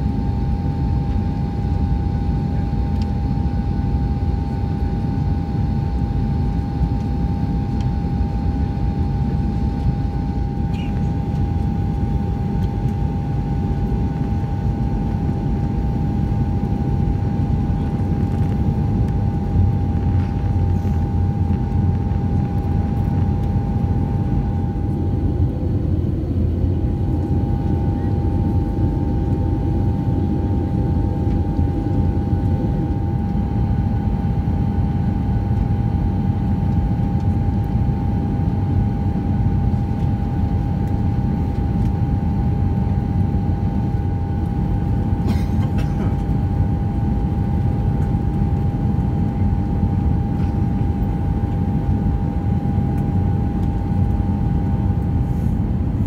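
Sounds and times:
low rumble of engines and airflow: 0.0 - 56.0
steady whining tone: 5.4 - 37.8.

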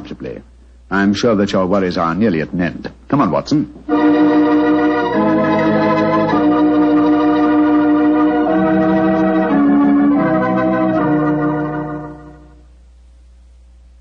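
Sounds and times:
organ playing held chords: 3.9 - 12.7.

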